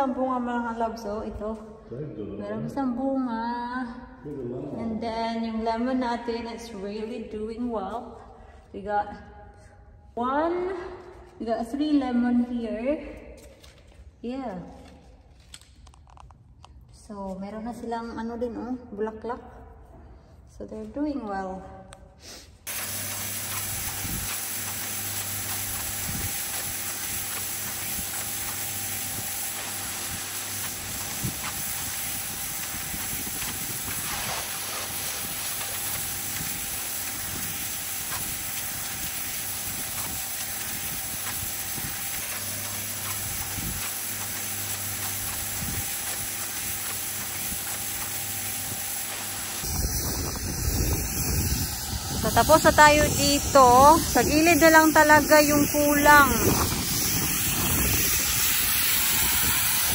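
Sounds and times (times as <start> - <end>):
pressure washer water jet hissing: 22.6 - 59.9
motor humming: 22.7 - 59.9.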